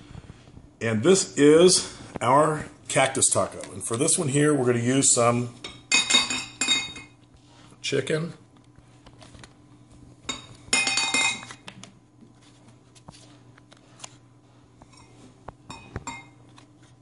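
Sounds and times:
utensil clinking against dish: 5.6s - 7.2s, 10.3s - 11.5s, 14.9s - 16.4s.

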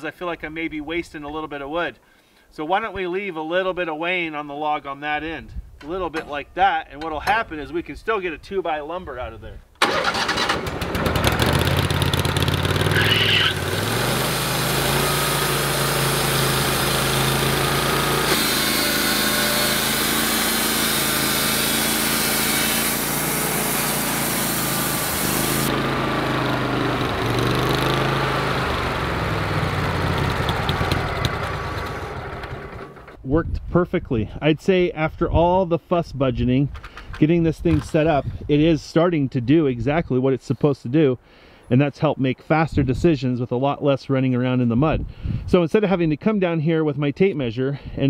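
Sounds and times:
gas engine starting and revving: 9.8s - 33.2s
saw blade cutting log: 12.8s - 26.4s
sawdust spraying hiss: 18.2s - 25.7s.

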